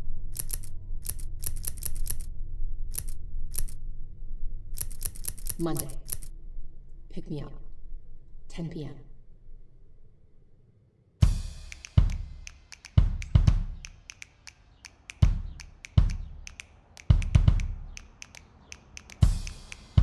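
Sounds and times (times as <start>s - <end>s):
heavy kick-drum hits: 11.2s - 12.4s, 13.0s - 13.8s, 15.2s - 16.4s, 17.1s - 18.0s
light ticking drum strikes: 11.2s - 20.0s.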